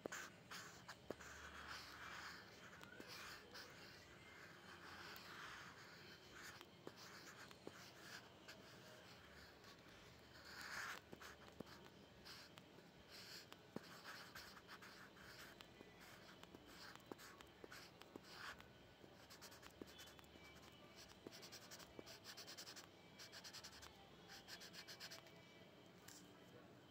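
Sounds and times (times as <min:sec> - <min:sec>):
pencil scratching on paper: 0:00.0 - 0:18.6, 0:19.2 - 0:25.2
pencil shading strokes: 0:00.0 - 0:25.3.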